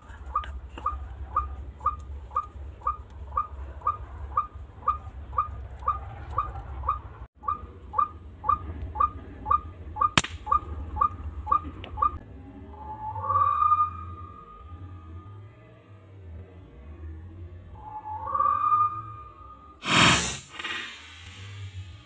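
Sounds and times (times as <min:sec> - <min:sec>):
waterhen calling: 0:00.0 - 0:12.2
sharp crack: 0:10.2 - 0:10.7, 0:19.8 - 0:21.9.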